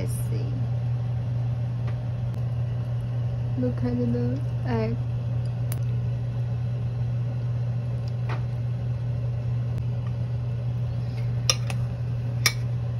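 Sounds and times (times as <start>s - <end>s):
steady low hum: 0.0s - 12.9s.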